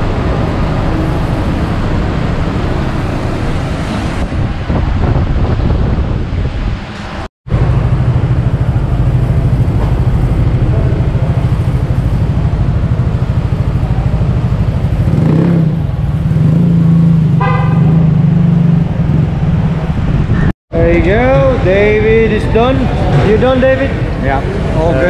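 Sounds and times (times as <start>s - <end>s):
motorcycle engine running: 7.5s - 20.5s
horn toot: 17.3s - 18.3s.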